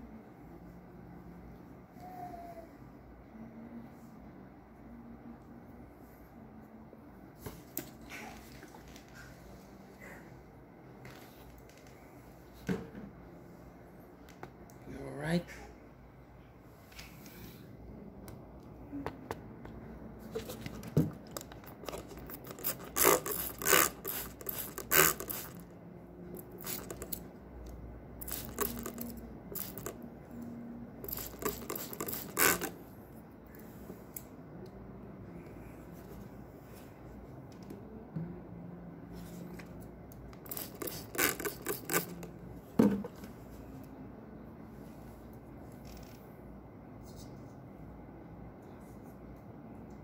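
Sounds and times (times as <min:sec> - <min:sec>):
brush scrubbing heatsink: 0:21.9 - 0:25.6, 0:26.6 - 0:27.2, 0:31.1 - 0:32.7.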